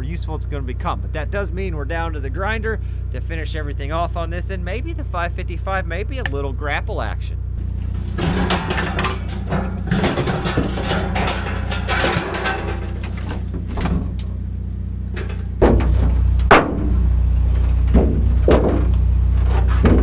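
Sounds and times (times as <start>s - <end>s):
sheet steel rattling and scraping: 7.6s - 14.4s, 15.1s - 20.0s.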